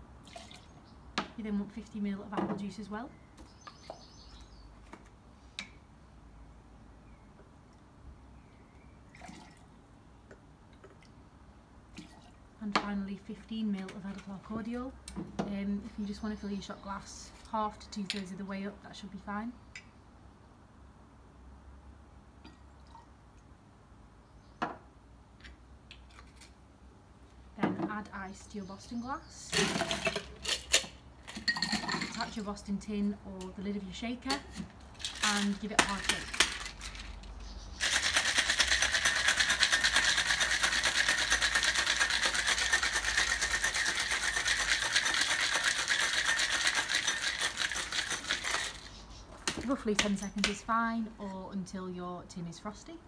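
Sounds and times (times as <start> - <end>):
ice rattling in cocktail shaker: 29.5 - 32.4, 34.3 - 37.2, 37.8 - 50.6.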